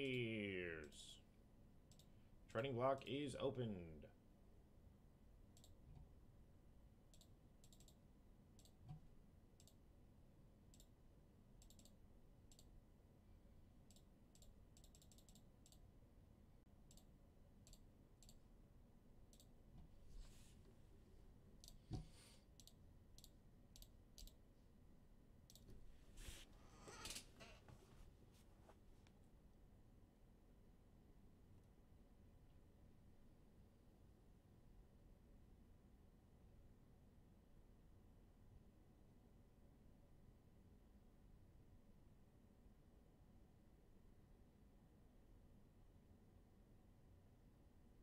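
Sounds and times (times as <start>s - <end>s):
computer mouse clicks: 5.6s - 6.1s, 7.1s - 8.0s, 8.6s - 9.8s, 10.7s - 10.9s, 11.6s - 12.7s, 13.9s - 15.8s, 16.9s - 18.4s, 19.3s - 19.5s, 21.6s - 24.4s, 25.5s - 25.8s.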